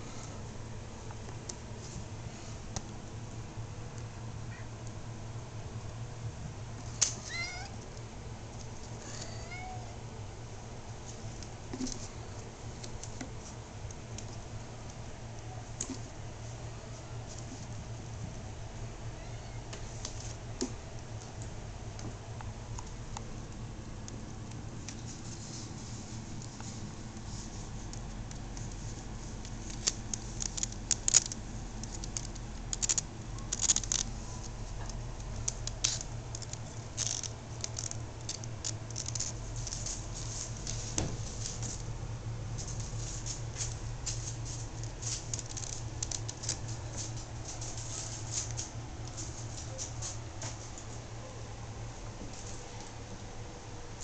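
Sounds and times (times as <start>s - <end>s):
steady low hum: 0.0s - 54.0s
kittens' claws scratching: 24.5s - 41.9s, 42.6s - 50.7s.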